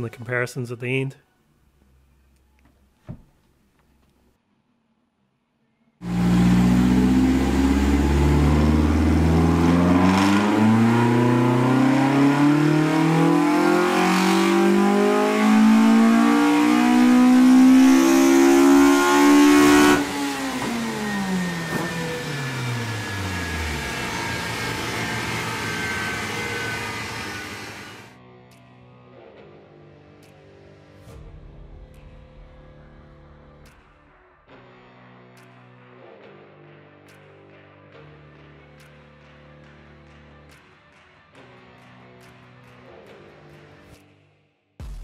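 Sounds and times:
engine revving at full throttle: 6.0s - 28.1s.

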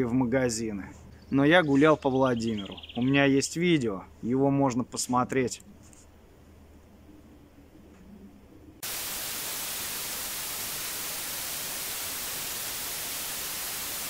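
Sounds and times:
tv static hiss: 8.8s - 14.0s.

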